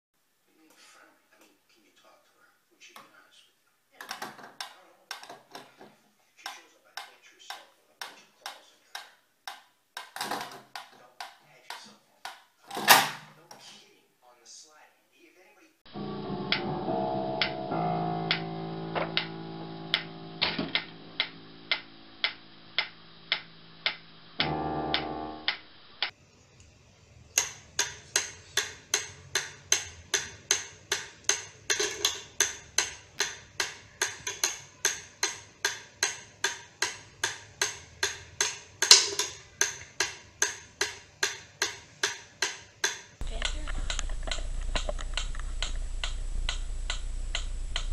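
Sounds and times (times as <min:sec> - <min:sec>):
piano notes: 0:15.9 - 0:26.1
metronome ticking: 0:20.8 - 0:26.1, 0:27.4 - 0:47.9.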